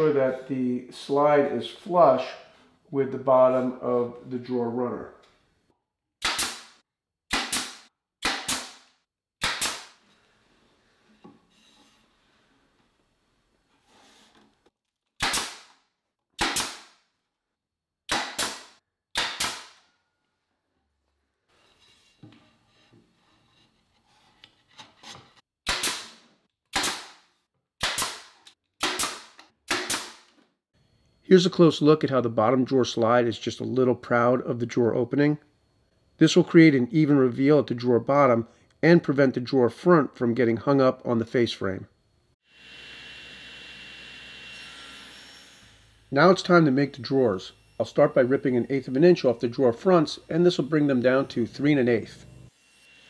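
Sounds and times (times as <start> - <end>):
nail gun firing: 6.2 - 8.8, 9.4 - 10.0, 15.2 - 15.8, 16.4 - 16.9, 18.1 - 19.8, 25.7 - 27.2, 27.8 - 30.3.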